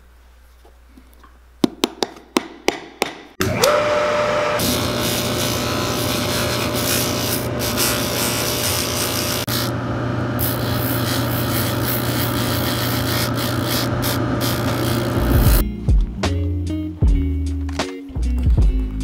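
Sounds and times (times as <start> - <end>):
motor hum: 3.4 - 15.6
sanding disc grinding leather: 3.7 - 9.8, 10.4 - 15.6.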